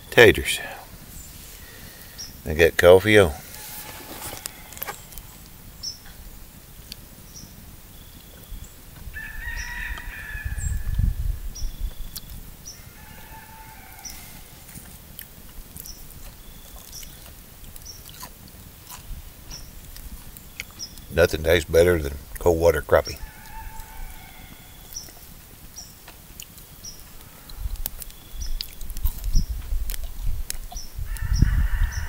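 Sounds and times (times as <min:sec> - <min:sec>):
small birds chirping: 0:00.0 - 0:32.0
rooster crowing: 0:03.4 - 0:05.0, 0:09.2 - 0:11.1, 0:12.8 - 0:14.7, 0:23.2 - 0:24.9, 0:31.1 - 0:32.0.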